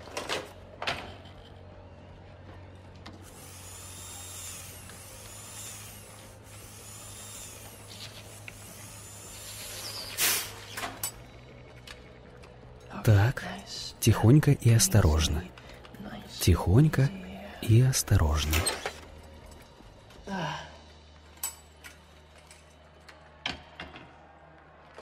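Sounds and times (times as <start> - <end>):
small electric motor whirring: 3.2 - 10.7.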